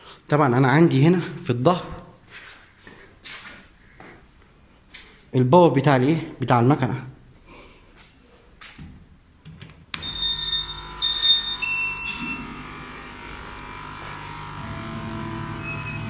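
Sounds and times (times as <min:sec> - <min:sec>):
machine running hum: 0:09.9 - 0:16.0
machine high stepping tones: 0:10.0 - 0:16.0.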